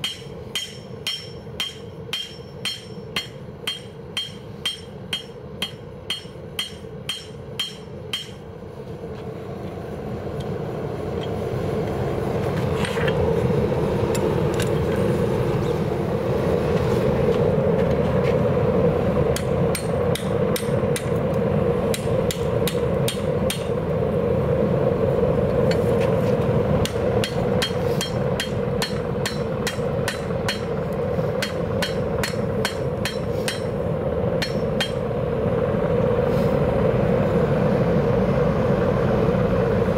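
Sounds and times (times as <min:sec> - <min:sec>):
hammer ringing on anvil: 0:00.0 - 0:08.4, 0:26.9 - 0:30.8, 0:31.4 - 0:33.8, 0:34.4 - 0:35.0
gas forge burner roar: 0:00.0 - 0:39.9.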